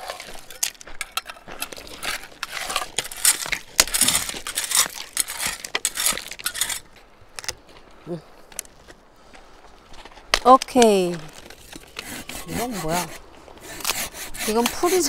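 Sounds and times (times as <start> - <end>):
dry branches snapping: 0.0 - 7.7.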